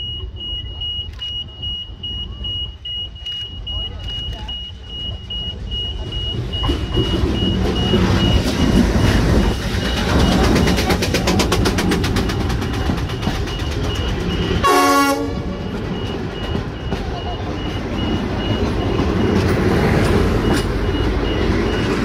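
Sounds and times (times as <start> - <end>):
level crossing warning beeps: 0.0 - 22.0
rail cars rolling past: 0.0 - 22.0
diesel locomotive passing: 1.4 - 22.0
train horn blast: 14.6 - 15.7.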